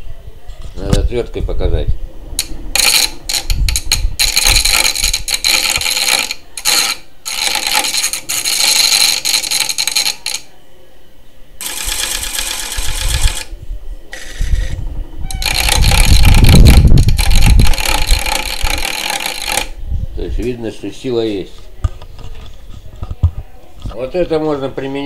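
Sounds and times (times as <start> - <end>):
screwdriver scraping spinning flywheel: 2.4 - 10.5, 11.6 - 13.5, 14.1 - 19.8.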